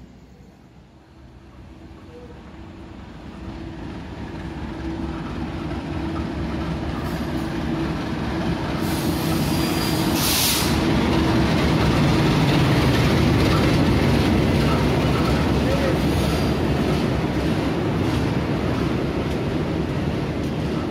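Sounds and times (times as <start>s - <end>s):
locomotive engine and wheels: 0.0s - 20.9s
brief hiss: 8.9s - 10.8s.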